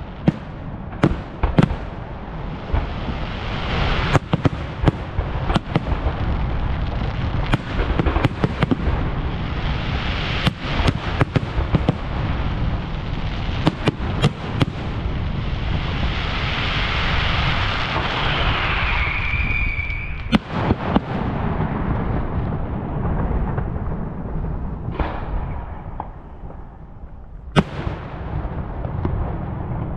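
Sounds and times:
fireworks bangs: 0.0s - 29.9s
firework whistle: 16.2s - 20.5s
low rumble: 20.7s - 29.9s.

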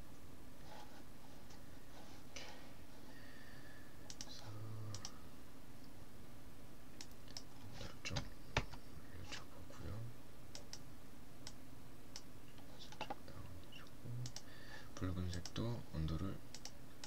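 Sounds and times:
low computer hum: 0.0s - 17.0s
mouse and keyboard clicks: 12.2s - 13.2s.

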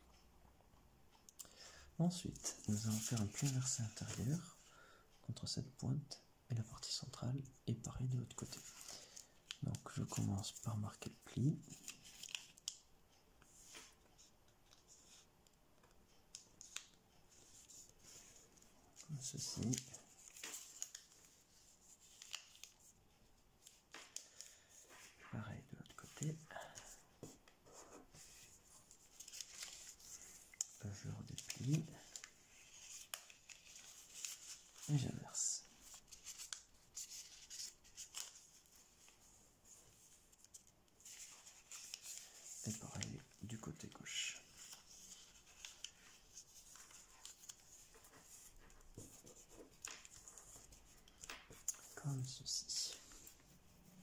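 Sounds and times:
paper rustling and crackling: 2.3s - 4.4s, 8.4s - 12.8s, 16.4s - 23.0s, 26.1s - 54.0s
crisp paper ticks: 7.9s - 25.2s, 25.8s - 53.4s.

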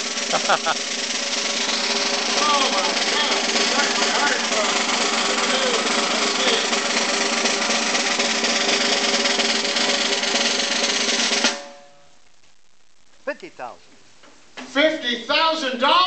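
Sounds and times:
snare drum roll: 0.0s - 11.8s.

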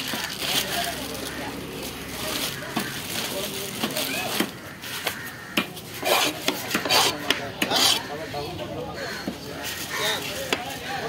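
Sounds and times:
knife scraping on wood: 5.9s - 8.2s.

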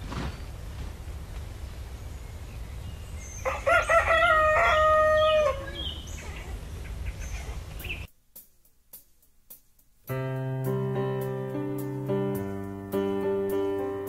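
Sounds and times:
rooster crowing: 3.4s - 6.0s.

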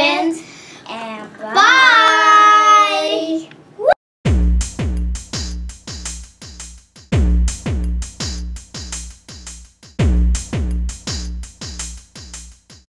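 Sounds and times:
electronic music with booming beat: 4.2s - 12.8s.

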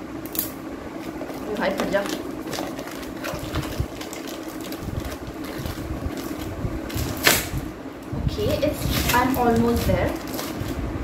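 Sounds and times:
packaging tearing and crackling: 0.3s - 7.6s, 8.8s - 10.8s
packaging ripping: 1.0s - 7.6s, 8.8s - 10.8s.

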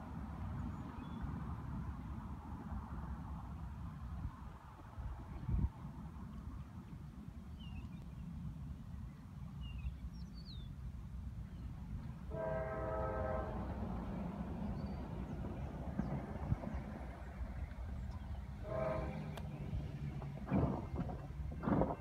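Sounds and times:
distant locomotive horn: 12.2s - 15.7s, 18.2s - 22.0s.

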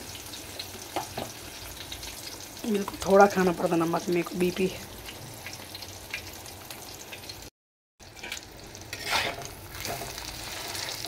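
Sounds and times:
egg sizzling in hot oil: 0.0s - 11.0s
metal spatula scraping: 8.1s - 11.0s.

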